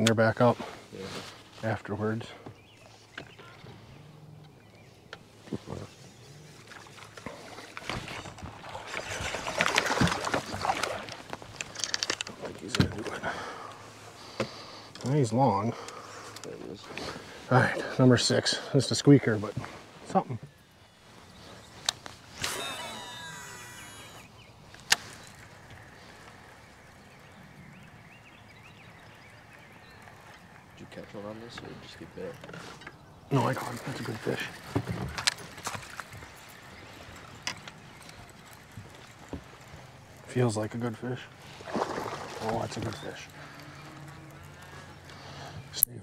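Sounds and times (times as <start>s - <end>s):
faint bird chirps: 2.2s - 6.8s
thumps on boat: 34.6s - 35.9s
fish splashing at water surface: 41.4s - 43.8s.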